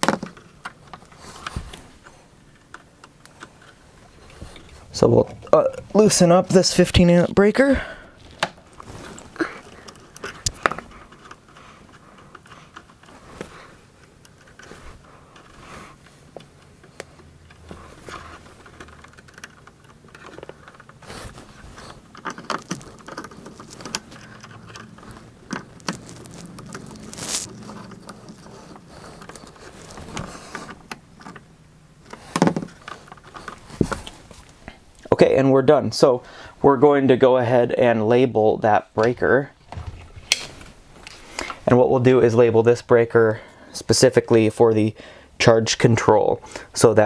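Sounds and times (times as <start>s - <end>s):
wire shifting: 0.0s - 35.2s, 39.0s - 42.7s.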